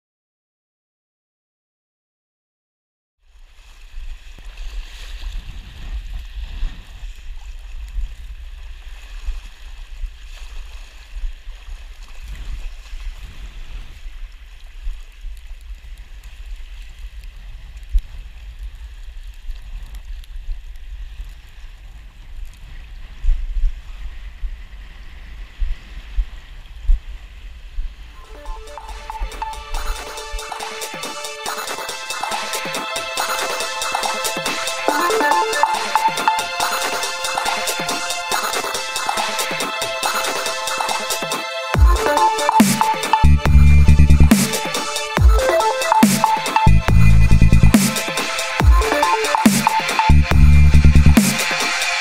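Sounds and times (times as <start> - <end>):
water sloshing and splashing: 3.3 - 17.9
wind buffeting microphone: 3.8 - 28.2.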